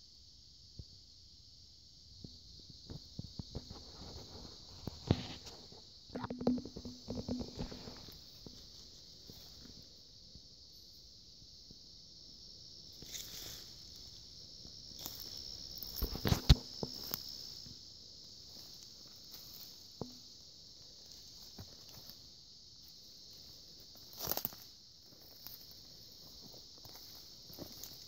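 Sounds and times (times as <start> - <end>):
high-pitched insect chorus: 0.0 - 28.0.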